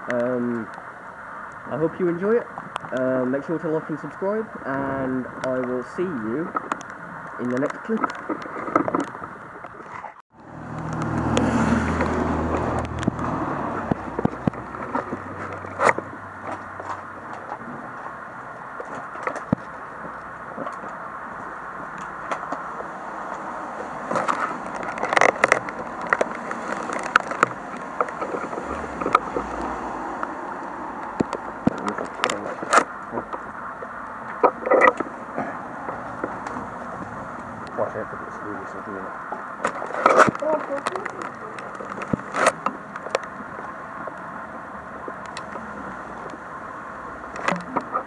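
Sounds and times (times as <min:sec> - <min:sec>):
distant road traffic hum: 0:00.0 - 0:48.0
steady rushing noise: 0:00.0 - 0:48.0
footsteps crunching over rubble: 0:11.9 - 0:30.2, 0:39.2 - 0:44.2.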